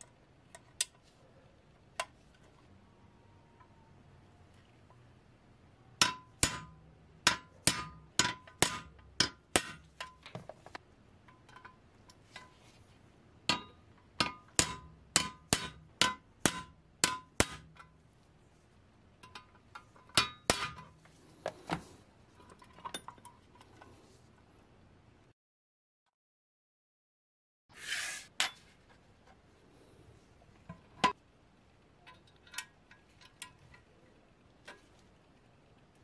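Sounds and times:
hammer striking steel punch: 6.0s - 9.9s, 13.5s - 17.8s.

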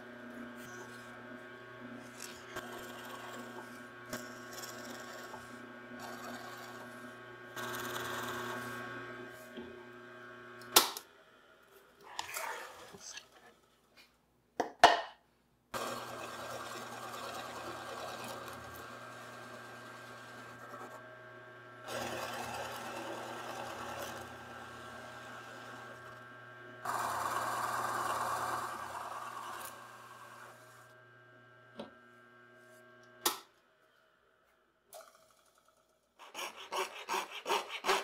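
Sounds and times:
drill press motor hum: 0.0s - 13.8s, 15.8s - 34.4s
drill bit cutting wood: 2.1s - 7.0s, 15.8s - 21.0s, 21.8s - 30.8s.

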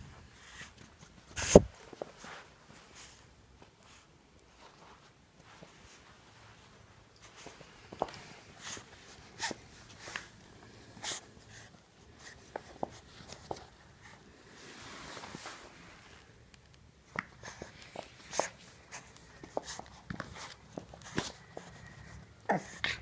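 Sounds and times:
puppy scuffling on carpet: 11.0s - 16.3s, 17.1s - 23.0s
fur rustling against camera: 14.5s - 16.4s.

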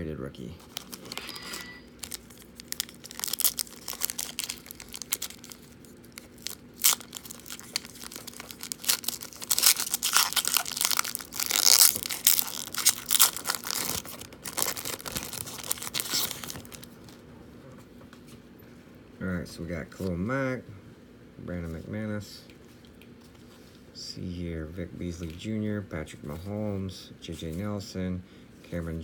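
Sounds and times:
foil wrapper tearing and crinkling: 0.6s - 1.4s, 2.0s - 16.9s.

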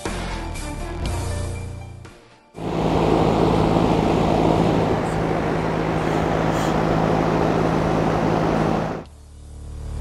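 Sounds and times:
rush of air: 2.6s - 9.1s
low motor hum: 2.6s - 10.0s.

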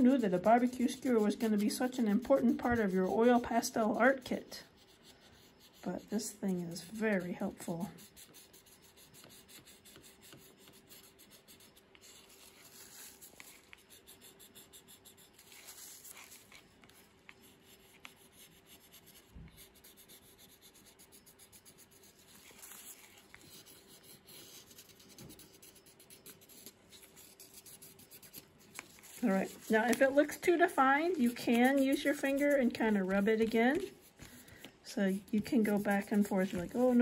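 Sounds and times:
skewer scratching on paper: 0.0s - 37.0s.

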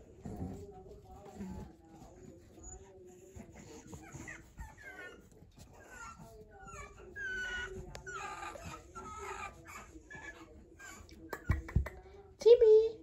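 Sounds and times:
puppy whining and whimpering: 1.2s - 11.5s.

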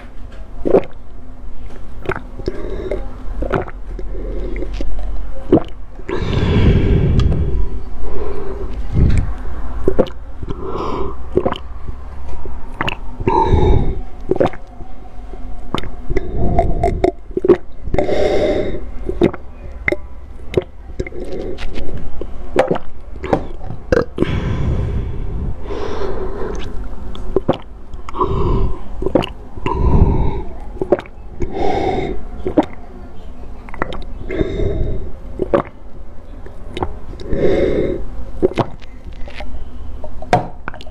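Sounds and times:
gulping and swallowing: 0.6s - 1.1s, 2.0s - 7.7s, 8.6s - 11.9s, 12.7s - 14.7s, 15.6s - 22.0s, 22.6s - 25.5s, 26.4s - 32.8s, 33.6s - 35.9s, 36.6s - 37.5s, 38.4s - 39.5s, 40.6s - 40.9s
wet mouth clicks: 0.6s - 1.1s, 2.0s - 7.6s, 8.6s - 11.7s, 12.7s - 14.7s, 15.6s - 24.4s, 26.4s - 32.8s, 33.7s - 35.8s, 36.4s - 37.6s, 38.4s - 40.9s.

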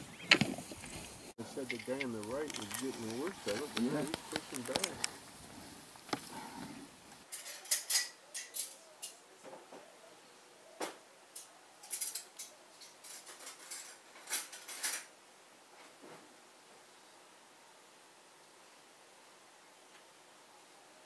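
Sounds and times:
deer antlers clacking: 0.0s - 7.2s.

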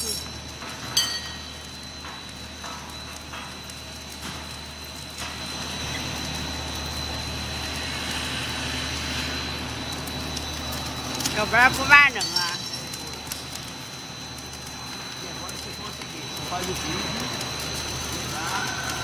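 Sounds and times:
motor hum: 0.0s - 19.0s.

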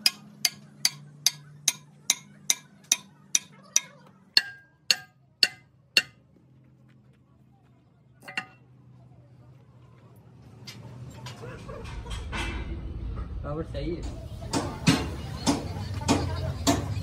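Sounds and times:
hammer striking metal: 0.0s - 6.2s, 8.2s - 8.6s
metal clank: 0.0s - 6.2s, 8.2s - 8.6s.

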